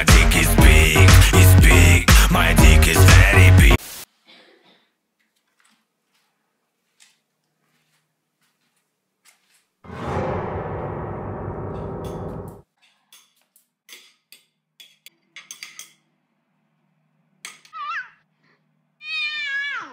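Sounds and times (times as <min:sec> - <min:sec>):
loud harsh noise: 0:09.9 - 0:12.6
cat meowing: 0:19.0 - 0:19.9.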